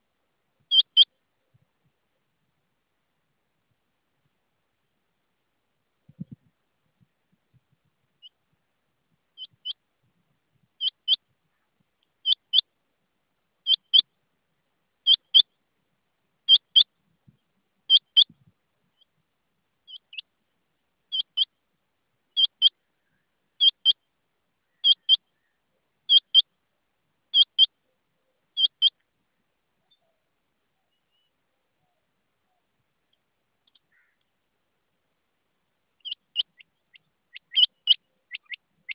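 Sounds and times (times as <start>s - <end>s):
quail two-note call: 24.8s - 25.2s.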